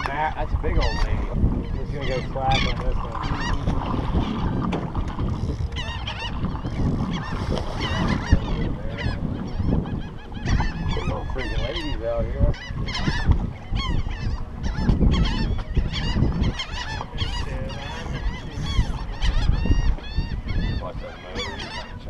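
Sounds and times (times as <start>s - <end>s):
low uneven rumble: 0.0s - 22.0s
seabirds squawking: 0.0s - 22.0s.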